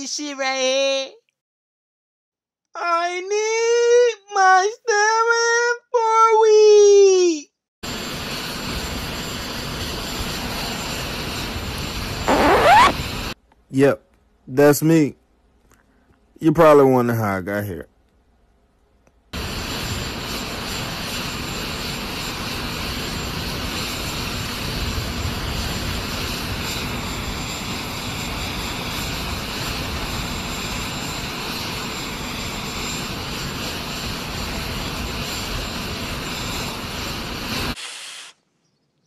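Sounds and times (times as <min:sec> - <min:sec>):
jet engine with high whine: 0:07.8 - 0:13.4, 0:19.4 - 0:37.8.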